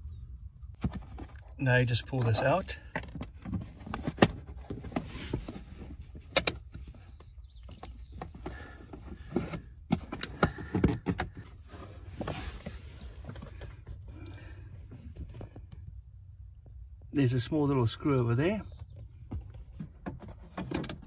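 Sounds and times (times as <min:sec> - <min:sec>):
rubbing and brushing on plastic: 0:04.7 - 0:06.1, 0:11.6 - 0:13.3.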